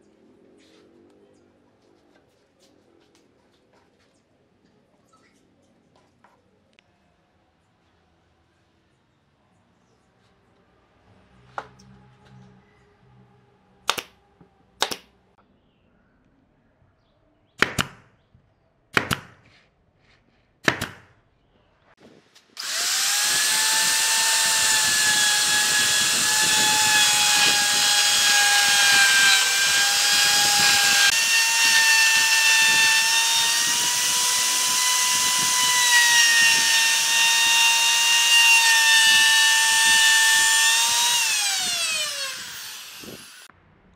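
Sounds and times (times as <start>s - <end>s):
power tool whining: 22.6s - 43.5s.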